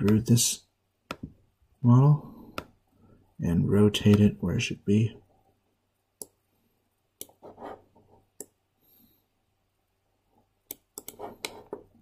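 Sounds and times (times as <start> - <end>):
computer mouse clicking: 7.2 - 7.5, 10.7 - 11.9.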